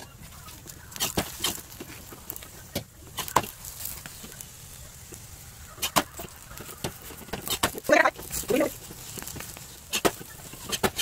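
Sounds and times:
metal spatula scraping griddle: 0.9s - 2.4s, 5.7s - 11.0s.

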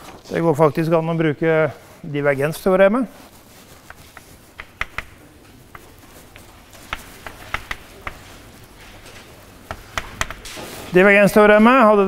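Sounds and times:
faint room hiss: 0.0s - 12.0s
chalk tapping on board: 3.8s - 9.1s, 9.7s - 10.6s.

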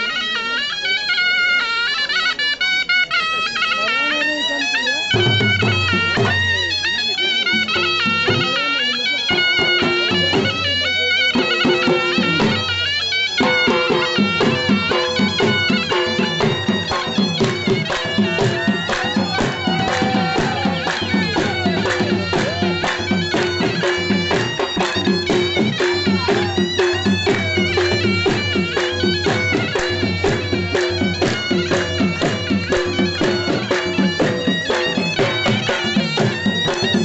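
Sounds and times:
shrill double-reed pipe melody: 0.0s - 37.0s
drum fast steady beat: 13.4s - 37.0s.

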